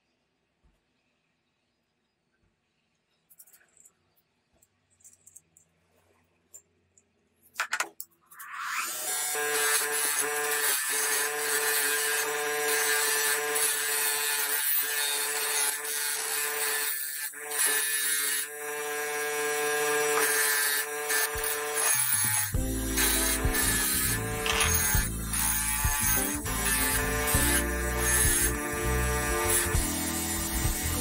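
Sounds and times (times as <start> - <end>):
bench grinder motor hum: 8.5 - 31.0
wire wheel scratching metal: 21.1 - 31.0.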